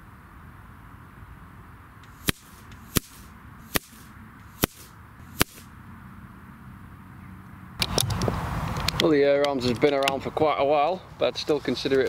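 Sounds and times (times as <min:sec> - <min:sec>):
air rifle shots: 0:02.1 - 0:05.7.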